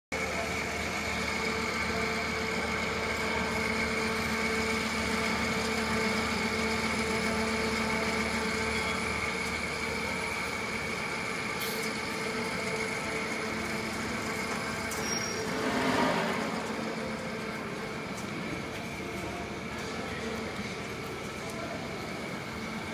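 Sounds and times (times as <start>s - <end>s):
washing machine hum: 0.2s - 22.9s
high whine: 11.8s - 19.0s
rushing sound: 15.3s - 18.0s.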